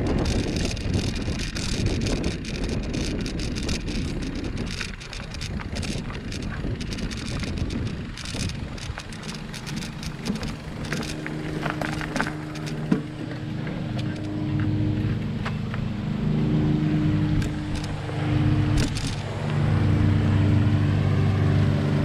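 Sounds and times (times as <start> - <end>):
bike tyres crunching on dirt: 0.0 - 15.8
steady pitched hum: 0.0 - 22.0
sharp snaps and clicks: 0.2 - 12.8, 18.8 - 19.6.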